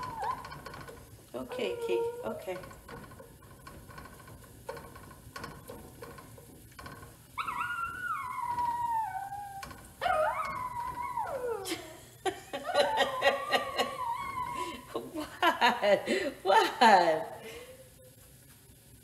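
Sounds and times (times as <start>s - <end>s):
dog whining: 0.0s - 2.6s, 7.4s - 11.8s, 12.7s - 14.9s.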